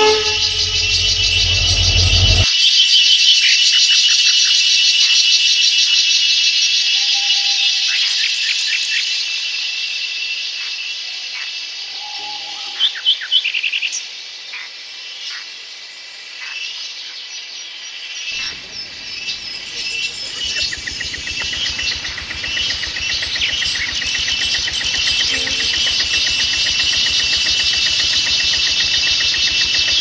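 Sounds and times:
birds chirping: 0.0s - 2.4s, 18.4s - 30.0s
crickets and insects chorus: 0.0s - 2.4s, 13.9s - 30.0s
fast pulsing trill: 0.0s - 2.4s, 18.4s - 30.0s
low rumble: 0.0s - 2.5s, 18.4s - 30.0s.

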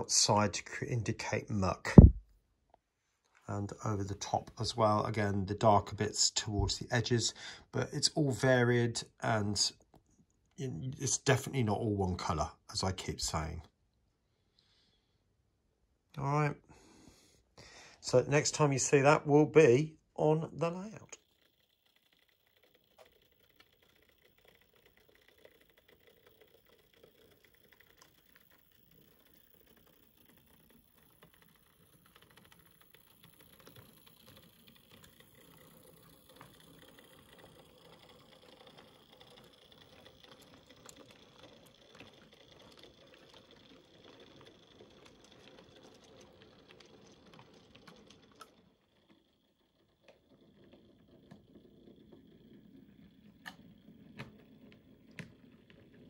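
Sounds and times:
wheels clicking over rail joints: 20.2s - 56.0s
small electric motor whirring: 20.7s - 56.0s.

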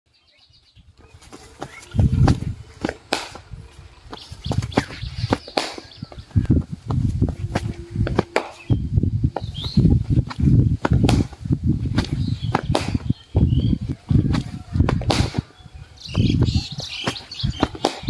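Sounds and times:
low thuds on microphone: 1.6s - 3.5s, 4.1s - 18.0s
cricket bat striking ball: 2.8s - 3.4s, 4.8s - 6.0s, 8.2s - 8.6s, 12.0s - 13.1s, 15.0s - 15.5s, 17.6s - 18.0s.

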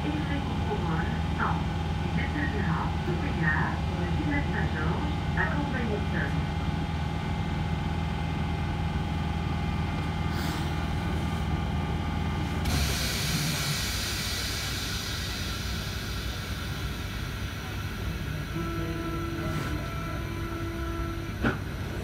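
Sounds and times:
train equipment humming: 0.0s - 22.0s
compressed air hissing: 12.6s - 16.5s.

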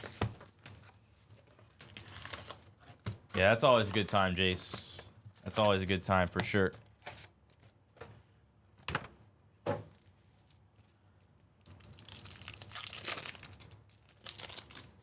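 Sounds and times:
plastic wrapper crinkling and tearing: 1.6s - 4.2s, 11.2s - 15.0s.

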